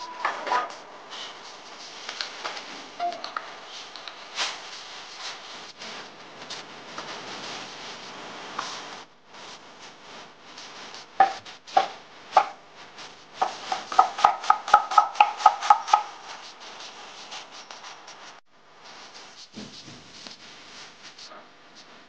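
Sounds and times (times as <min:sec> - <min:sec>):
cleaver chopping onion on wooden board: 0:13.4 - 0:16.1.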